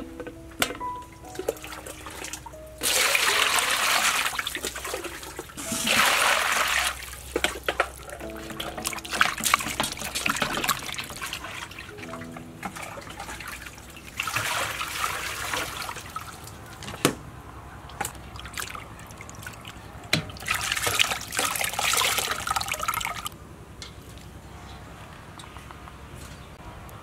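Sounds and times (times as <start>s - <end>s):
water splashing in metal basin: 0.6s - 16.8s, 17.9s - 23.3s
water poured from dipper: 1.4s - 16.5s, 20.4s - 23.3s.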